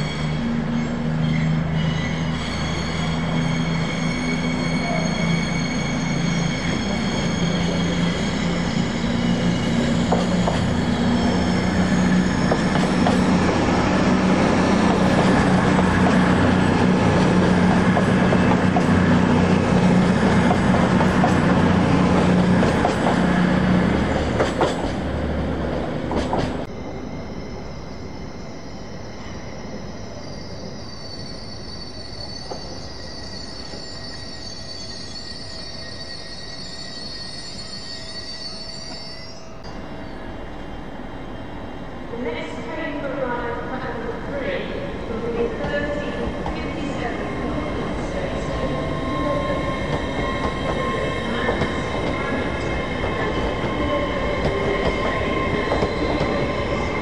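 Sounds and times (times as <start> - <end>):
high-pitched wheel squeal: 0.0 - 17.3, 26.9 - 40.2, 47.6 - 57.0
diesel train engines droning: 0.0 - 57.0
train wheels clicking over rail joints: 24.1 - 25.1, 26.1 - 26.7.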